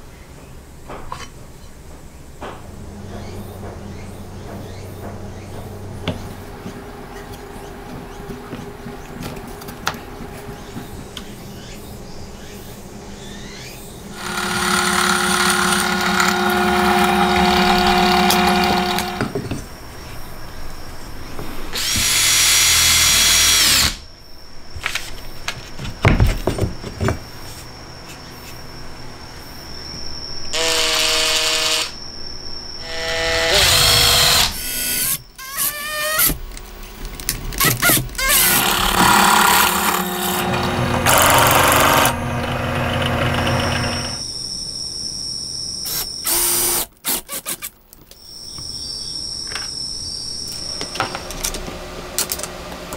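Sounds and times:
cordless drill drilling metal: 0:14.2 - 0:19.4, 0:21.8 - 0:24.0, 0:30.6 - 0:32.0, 0:32.8 - 0:36.4, 0:37.6 - 0:44.2, 0:45.9 - 0:47.7.

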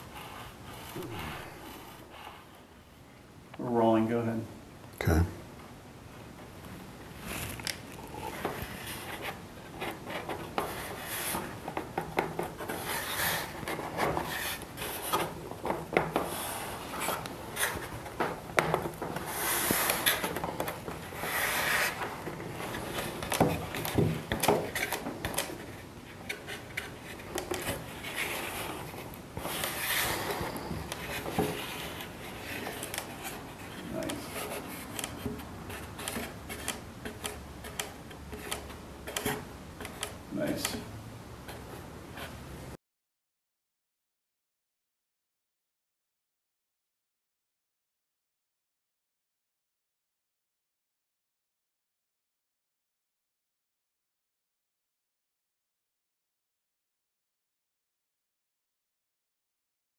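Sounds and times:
wood scraping against wood: 0:00.1 - 0:02.6, 0:07.3 - 0:40.9.

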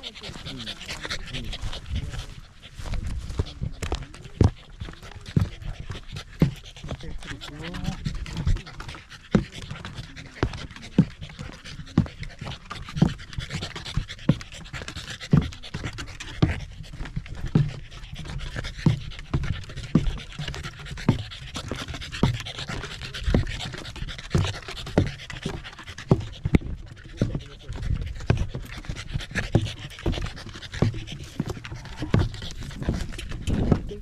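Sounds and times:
dog panting: 0:00.0 - 0:34.0
footsteps on wooden boardwalk: 0:00.0 - 0:34.0.

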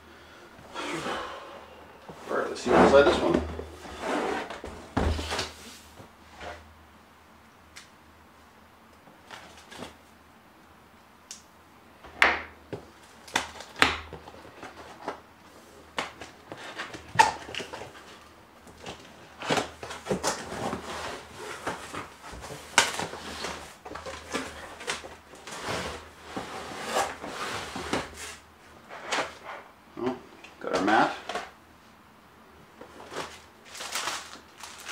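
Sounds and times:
cardboard rustling and scraping: 0:02.1 - 0:06.7, 0:16.0 - 0:29.7, 0:32.8 - 0:34.9.

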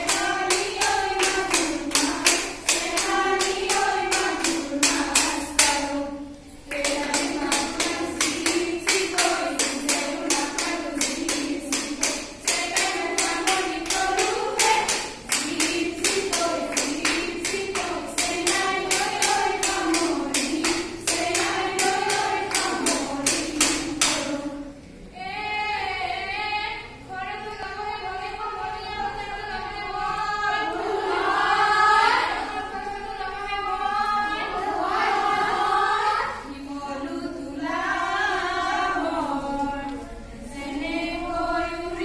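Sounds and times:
fast rhythmic clapping: 0:00.0 - 0:24.5
women singing together: 0:00.0 - 0:42.0.

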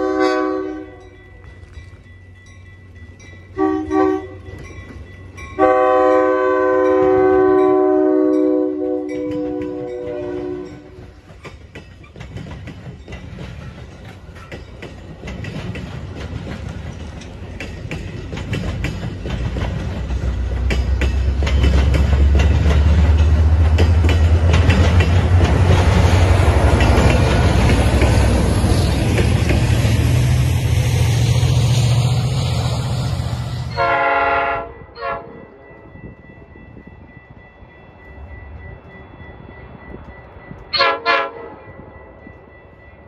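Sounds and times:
train horn: 0:00.0 - 0:01.2, 0:03.6 - 0:04.5, 0:05.6 - 0:11.1, 0:33.6 - 0:35.6, 0:40.7 - 0:41.9
diesel locomotive rumble: 0:01.6 - 0:35.4
wheels clicking over rail joints: 0:09.2 - 0:30.7.

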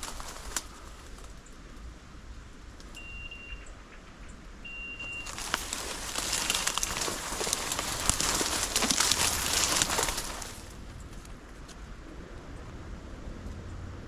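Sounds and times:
dry undergrowth crackling: 0:00.0 - 0:02.0, 0:05.0 - 0:12.1.

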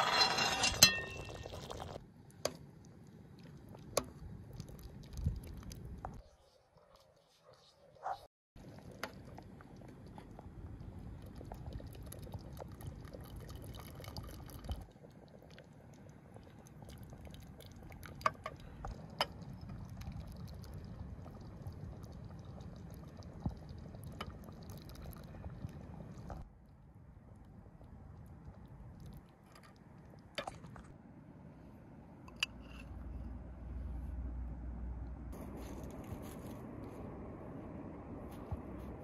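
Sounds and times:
soup pouring and dripping into pot: 0:00.0 - 0:02.0, 0:08.6 - 0:26.4
steady low rush: 0:33.0 - 0:39.0.

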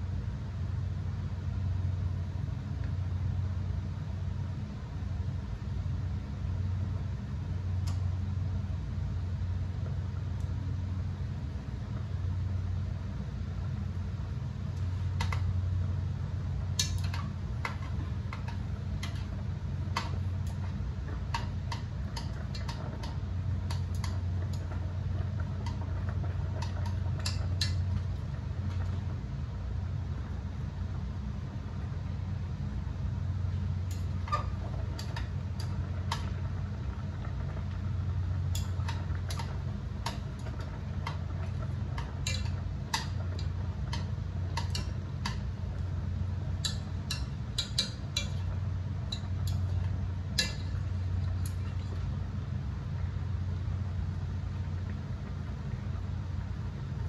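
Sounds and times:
low hum: 0:00.0 - 0:57.0
chopsticks clicking on steel pot: 0:42.0 - 0:45.5, 0:46.6 - 0:48.5.

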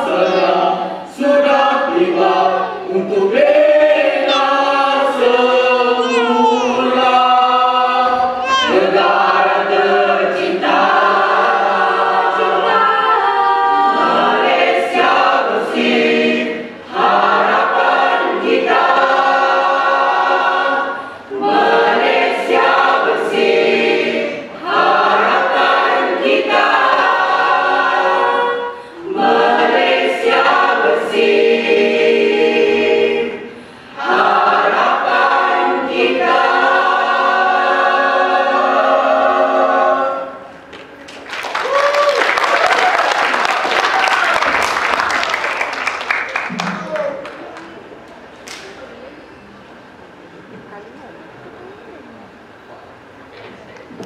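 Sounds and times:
mixed choir singing unaccompanied: 0:00.0 - 0:40.7.

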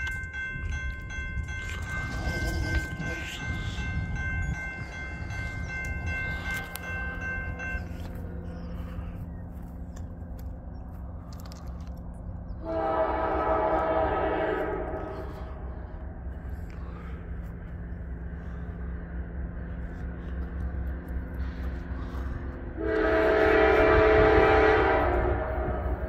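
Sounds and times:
railroad crossing bell ringing: 0:00.0 - 0:10.7, 0:12.4 - 0:26.0
train air horn blast: 0:12.6 - 0:15.9, 0:22.7 - 0:26.0.

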